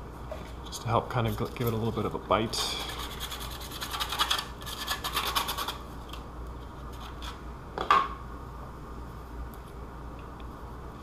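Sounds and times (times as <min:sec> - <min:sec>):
sandpaper rubbing on plastic: 0:02.7 - 0:05.8.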